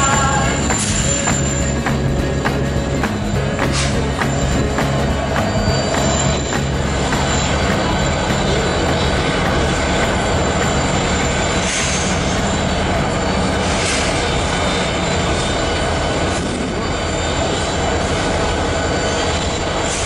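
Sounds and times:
steam venting roar: 0.0s - 20.0s.

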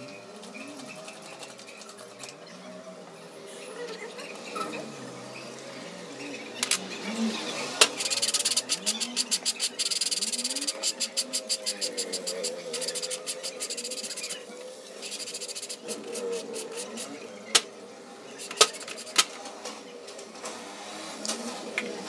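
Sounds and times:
small mechanical clicks: 7.8s - 14.4s, 18.4s - 19.3s
light rubbing: 7.8s - 17.2s, 18.4s - 19.3s.

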